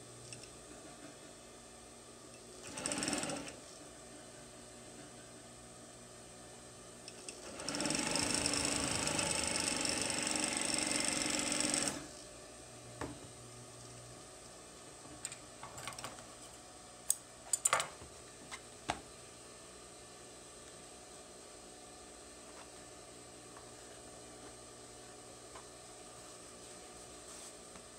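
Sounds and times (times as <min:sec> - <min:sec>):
sewing machine running: 0:02.6 - 0:03.6, 0:07.3 - 0:12.1.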